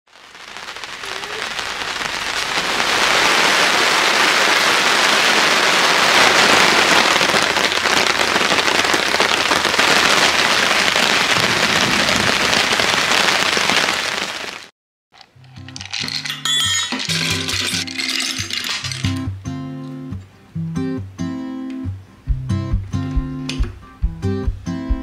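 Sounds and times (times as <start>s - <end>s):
heavy rain falling: 0.1s - 14.7s, 17.0s - 19.4s.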